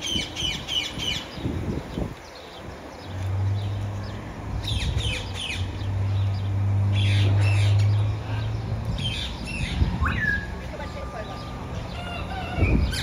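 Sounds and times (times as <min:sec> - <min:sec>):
parakeets chirping: 0:04.6 - 0:10.5.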